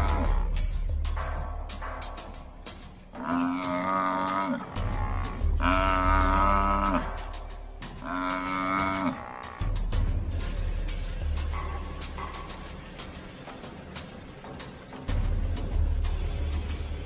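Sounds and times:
buffalo bawling in distress: 3.2s - 9.7s.

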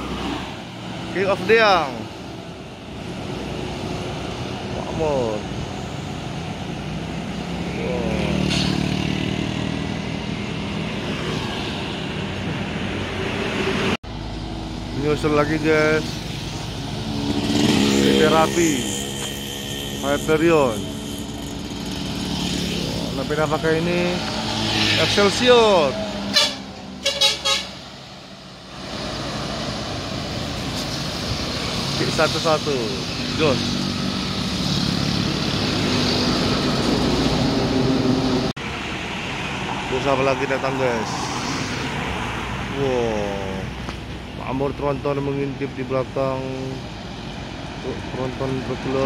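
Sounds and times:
drone of buses: 0.0s - 49.0s
rush of traffic tyres and engines: 0.0s - 49.0s
truck driving on highway: 0.0s - 49.0s
motorcycles passing close by: 6.8s - 14.0s, 15.7s - 26.9s, 28.9s - 38.6s.

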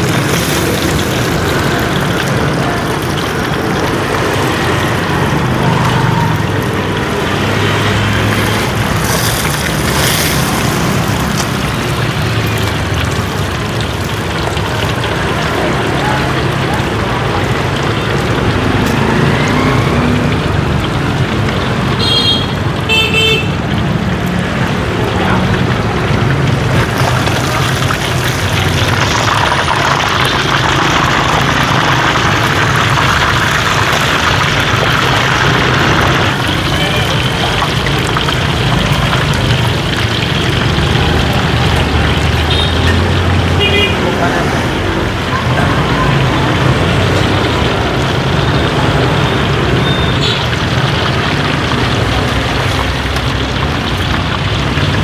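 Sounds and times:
vehicle engines running: 0.0s - 55.0s
car horn toots: 22.0s - 23.5s.

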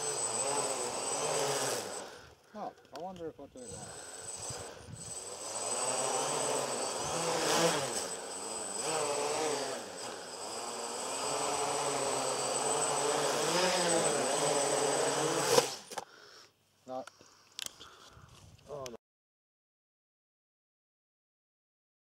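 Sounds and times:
quadcopter propellers buzzing: 0.0s - 2.4s, 3.5s - 16.0s.

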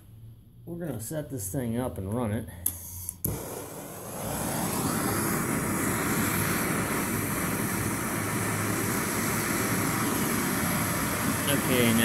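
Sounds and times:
propane torch flame hissing: 3.2s - 12.0s.

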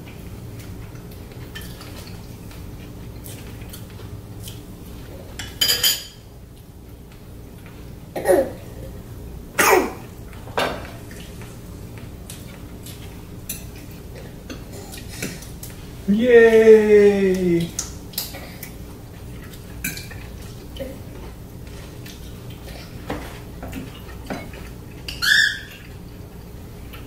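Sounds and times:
cutlery and dishes clinking: 5.4s - 6.2s.

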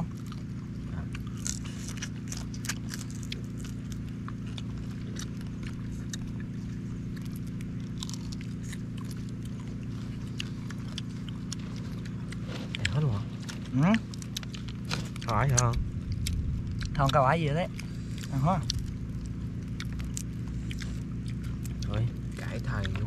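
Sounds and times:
steady low hum: 0.0s - 23.0s
shell cracking and crunching: 1.1s - 23.0s.

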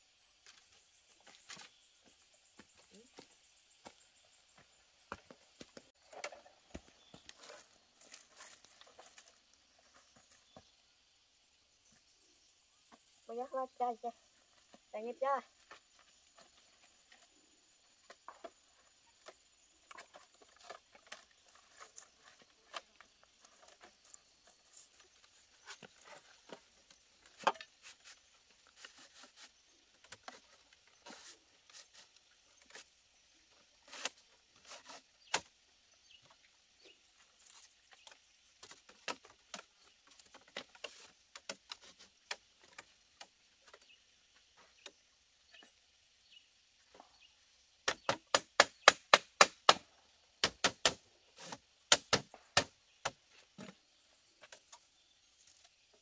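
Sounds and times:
bamboo strips clicking and knocking: 19.2s - 29.4s, 50.4s - 53.8s.

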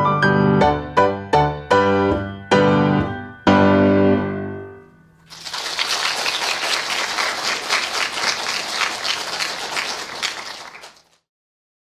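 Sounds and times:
audience applauding: 5.3s - 11.2s.

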